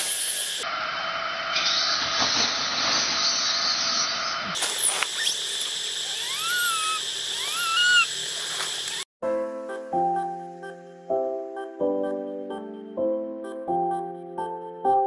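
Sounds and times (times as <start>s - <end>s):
insect noise: 4.6s - 9.0s
baby monkey crying: 6.0s - 9.0s.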